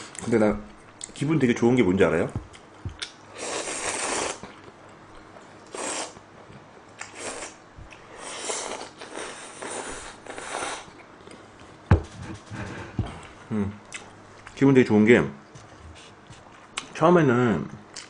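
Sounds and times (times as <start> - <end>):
person slurping noodles: 3.3 - 4.4, 5.7 - 6.2, 8.2 - 10.9.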